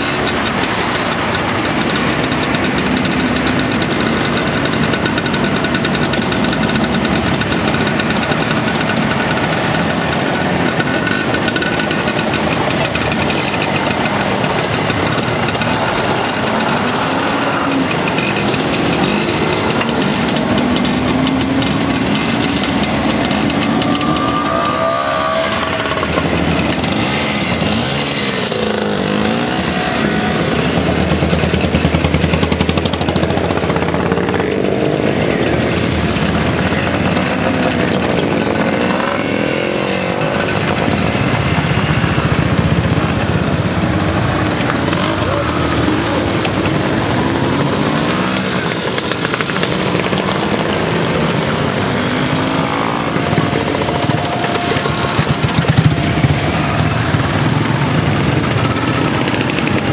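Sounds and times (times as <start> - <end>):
motorcycles riding past: 0.0 - 59.9.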